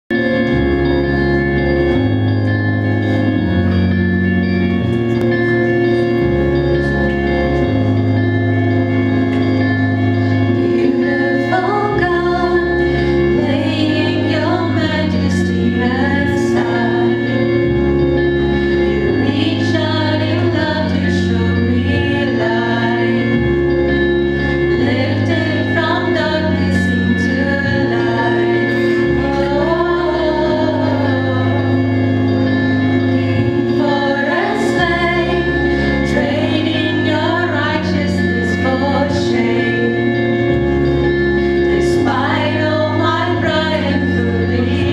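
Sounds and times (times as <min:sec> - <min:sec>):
sustained chords and bass: 0:00.0 - 0:44.9
women singing worship song: 0:10.5 - 0:17.4, 0:19.1 - 0:23.6, 0:24.8 - 0:40.6, 0:41.7 - 0:44.9.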